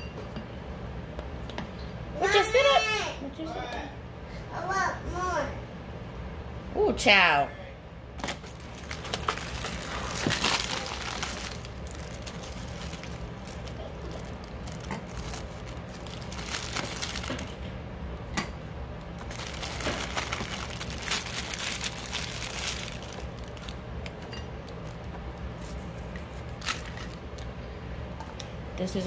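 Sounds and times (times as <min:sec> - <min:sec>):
crackers rustling: 0:08.2 - 0:17.6, 0:19.2 - 0:27.5.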